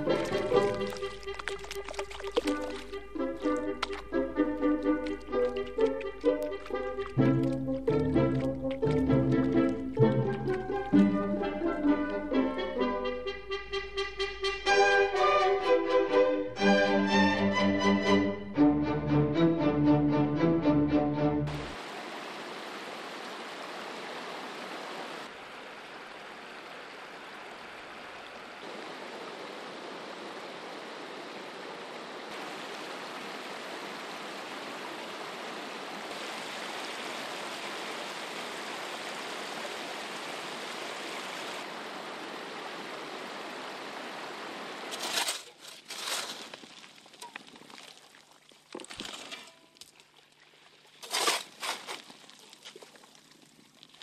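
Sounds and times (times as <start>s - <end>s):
water pouring and splashing: 0.0s - 12.3s, 21.5s - 54.0s
flowing river water: 0.0s - 13.1s, 21.4s - 54.0s.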